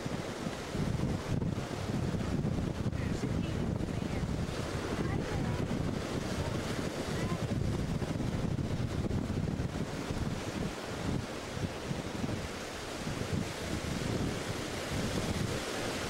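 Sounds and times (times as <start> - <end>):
ocean surf washing: 0.0 - 16.0
wind buffeting microphone: 0.0 - 16.0.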